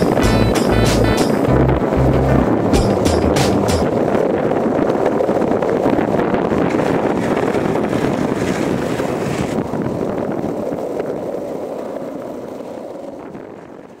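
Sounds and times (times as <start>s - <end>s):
skateboard wheels rumbling on pavement: 0.0s - 14.0s.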